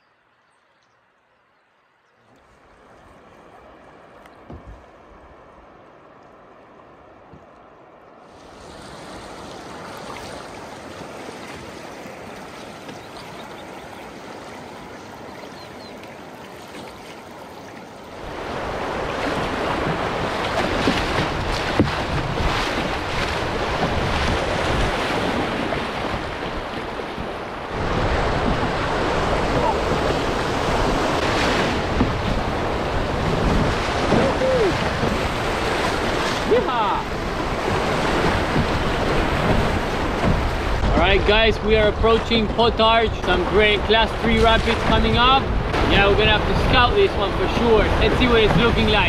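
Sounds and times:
choppy river water rushing: 2.2s - 49.0s
wind buffeting microphone: 18.1s - 49.0s.

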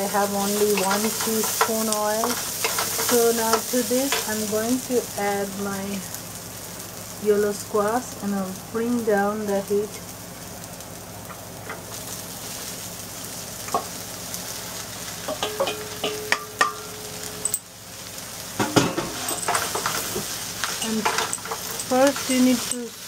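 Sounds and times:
wooden spoon scraping a pan: 0.0s - 4.5s, 18.6s - 23.0s
food sizzling in a wok: 0.0s - 23.0s
spoon knocking against pan: 15.3s - 17.6s.

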